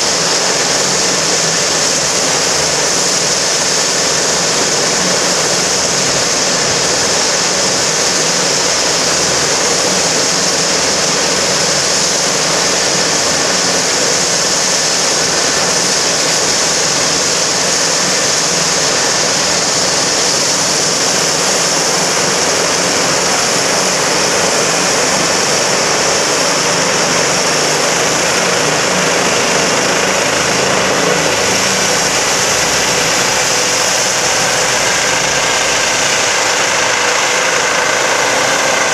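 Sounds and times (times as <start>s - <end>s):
helicopter turbine whine: 0.0s - 38.9s
rotor rushing: 15.2s - 38.9s.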